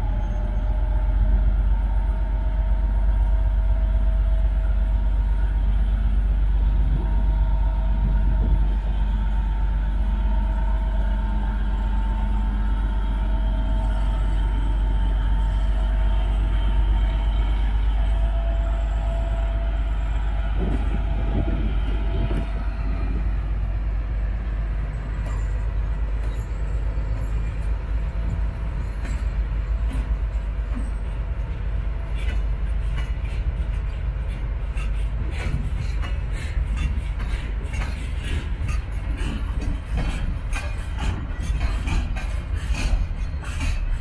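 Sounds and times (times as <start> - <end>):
diesel locomotive engines rumbling: 0.0 - 44.0
train wheels clacking over rail joints: 25.0 - 44.0.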